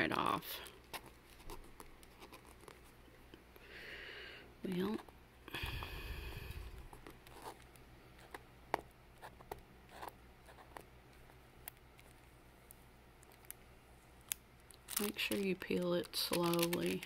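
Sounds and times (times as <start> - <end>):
paper tab peeling crackles: 14.2 - 17.0.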